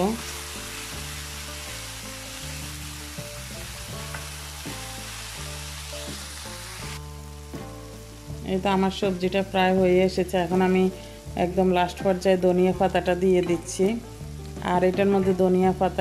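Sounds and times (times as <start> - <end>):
soft background music: 0.0 - 16.0
vegetables sizzling in oil: 0.0 - 16.0.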